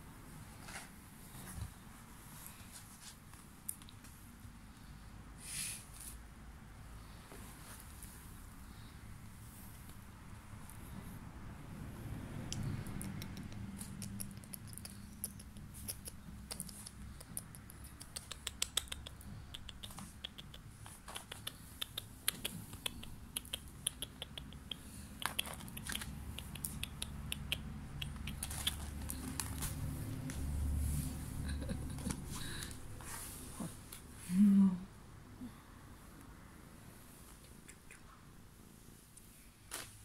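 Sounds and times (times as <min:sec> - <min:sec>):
kitten claws scratching mat: 0:13.0 - 0:30.4.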